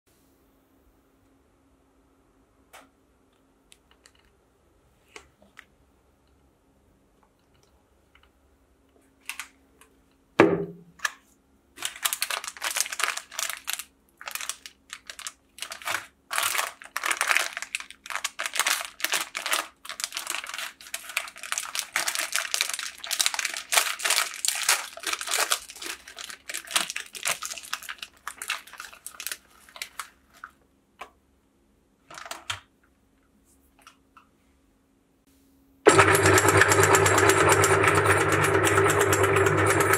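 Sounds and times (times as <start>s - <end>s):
thump: 10.4s - 10.8s
plastic wrappers crinkling: 11.8s - 30.6s, 32.0s - 32.7s
wrapper tearing: 11.8s - 30.6s, 32.1s - 32.5s.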